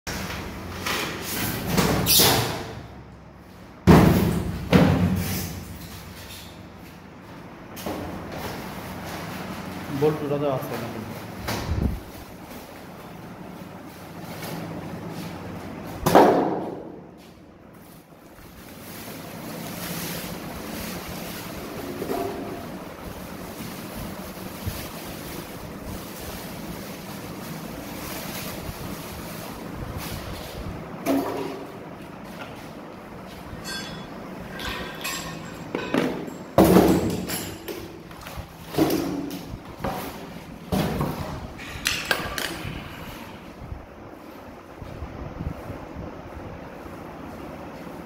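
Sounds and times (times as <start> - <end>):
plastic wrapping rustling: 8.1 - 15.9, 17.6 - 31.0.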